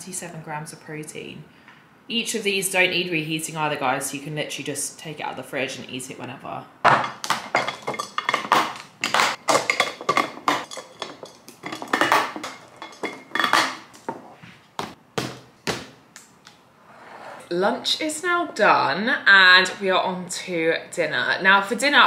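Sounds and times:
glass containers clinking: 6.9s - 14.2s.

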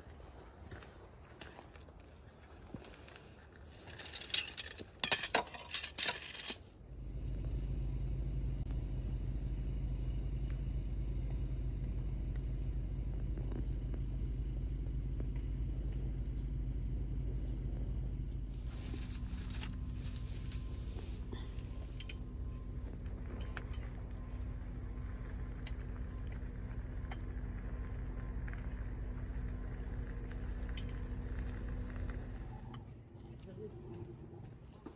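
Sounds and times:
steady low hum: 0.0s - 34.9s
metal tent stakes clinking: 3.8s - 6.7s, 21.4s - 22.3s, 23.3s - 23.9s.

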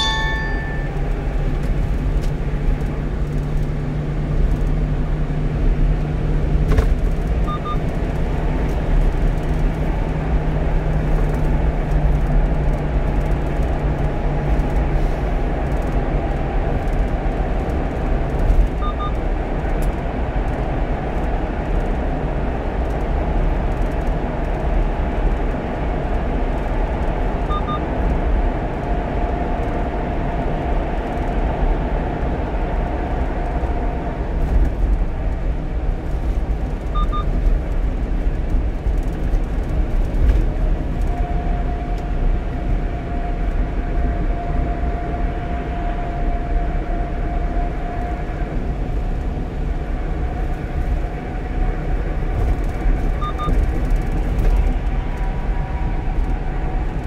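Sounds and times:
faint short double beep: 0.0s - 1.0s, 7.5s - 7.8s, 27.5s - 27.8s, 37.0s - 37.3s, 53.2s - 53.6s
truck engine drone: 0.0s - 57.0s
tyre and road noise: 0.0s - 57.0s.

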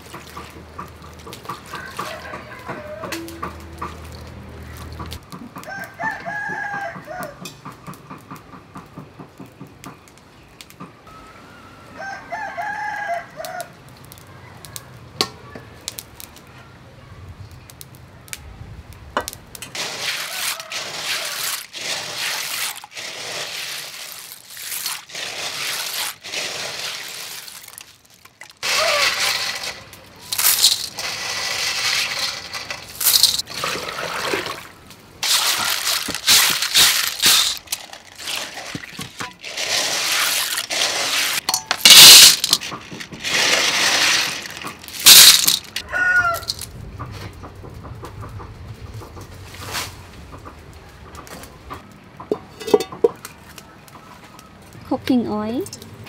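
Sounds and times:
rooster crowing: 1.6s - 3.8s, 5.6s - 7.5s, 11.1s - 13.8s, 20.1s - 21.6s, 28.6s - 29.2s, 45.8s - 46.6s
snail shells grinding in bowl: 19.7s - 33.9s, 35.2s - 46.7s.

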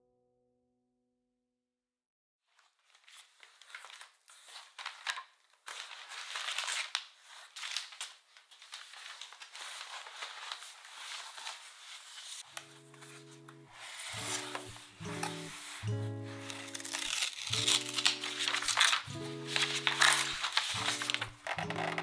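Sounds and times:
cardboard box being unpacked: 8.6s - 22.0s.

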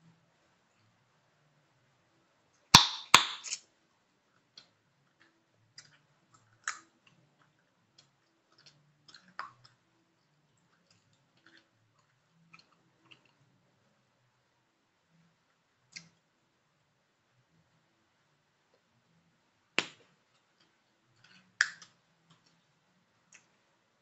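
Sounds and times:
chewing gum snapping: 4.6s - 9.8s, 10.7s - 13.4s.

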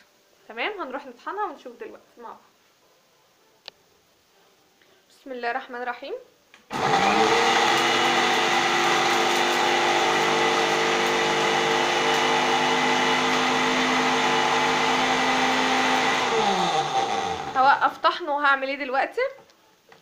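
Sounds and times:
electric spice grinder whining: 6.7s - 17.8s.

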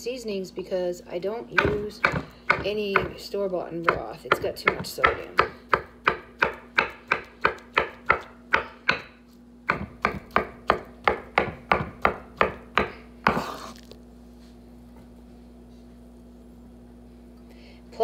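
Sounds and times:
faint steady hum: 0.0s - 18.0s
knife chopping on wooden board: 1.5s - 3.2s, 3.8s - 13.9s.

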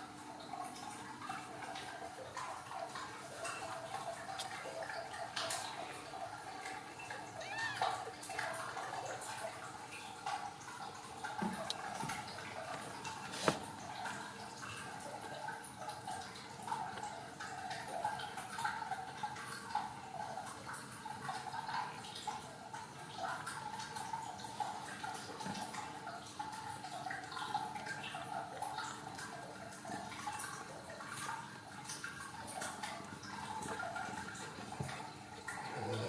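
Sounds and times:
kittens suckling wet clicking: 2.9s - 10.8s, 11.5s - 14.3s.

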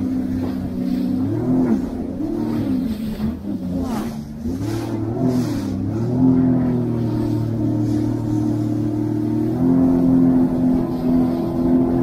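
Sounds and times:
jet ski engine revving: 0.0s - 12.0s
water rushing: 0.0s - 12.0s.

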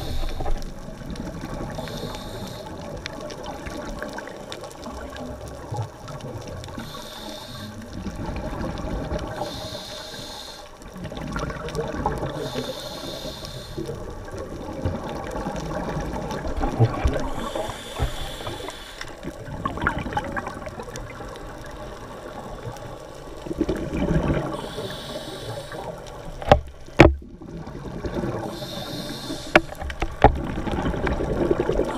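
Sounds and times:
regulator inhale hiss: 0.0s - 0.8s, 1.7s - 3.0s, 6.7s - 8.0s, 9.3s - 10.8s, 12.3s - 14.1s, 17.2s - 19.3s, 24.5s - 26.2s, 28.3s - 30.1s
exhaled air bubbling: 0.0s - 31.9s.

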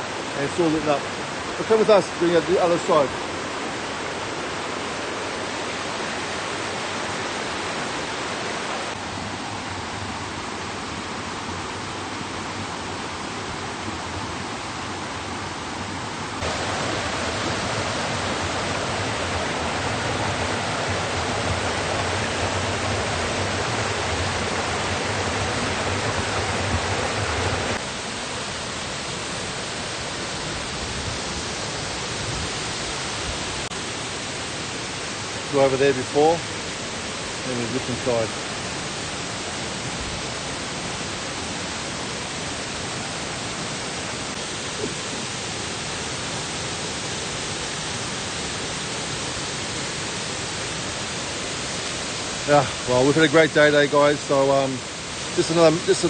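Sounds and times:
waterfall and creek rushing: 0.0s - 56.0s.

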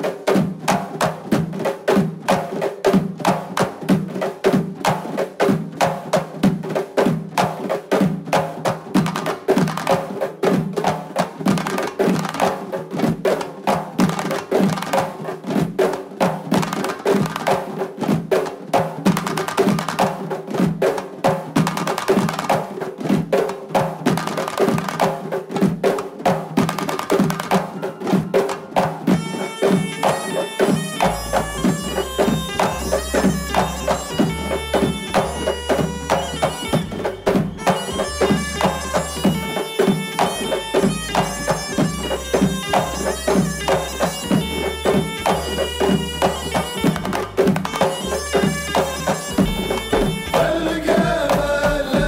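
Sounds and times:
frame drums beating: 0.0s - 52.0s
wind instrument melody: 27.6s - 51.9s
bass: 31.0s - 39.4s, 40.3s - 52.0s.

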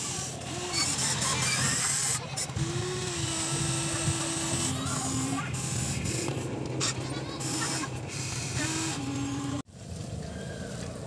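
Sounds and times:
electric gear motors whining: 0.0s - 9.7s.

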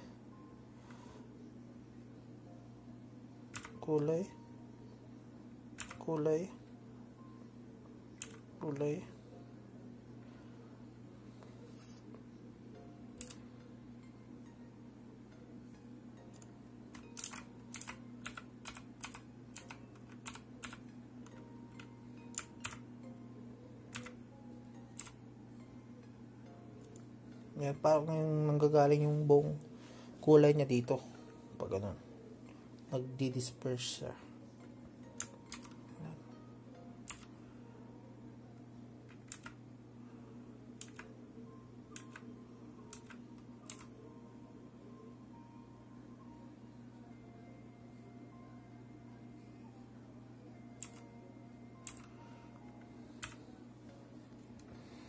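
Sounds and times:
steady low hum: 0.0s - 55.0s
keyboard key clicks: 3.5s - 3.8s
keyboard keys clicking: 3.5s - 3.8s, 5.8s - 6.3s, 8.2s - 8.8s, 16.3s - 22.8s, 23.9s - 24.2s, 24.9s - 25.2s, 35.1s - 35.8s, 37.0s - 37.3s, 39.1s - 39.6s, 40.8s - 41.1s, 42.0s - 42.3s, 42.9s - 43.9s, 50.8s - 51.1s, 51.8s - 52.1s, 52.8s - 53.4s.

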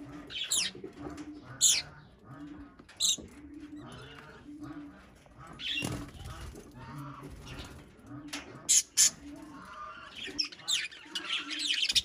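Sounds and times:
budgerigars chattering: 0.0s - 12.0s
wings flapping: 5.7s - 7.9s.

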